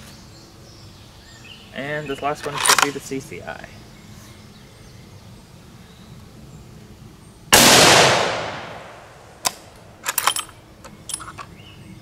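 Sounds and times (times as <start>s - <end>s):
rifle bolt metallic clicks: 2.4s - 3.0s, 9.4s - 11.5s
rifle shot with echo: 7.5s - 9.6s.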